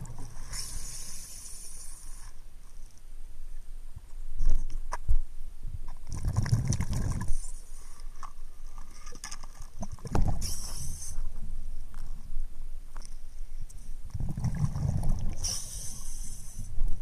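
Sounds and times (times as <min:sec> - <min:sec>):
underwater rumbling water: 0:00.0 - 0:01.0, 0:05.9 - 0:07.6, 0:08.2 - 0:13.0, 0:14.0 - 0:16.2.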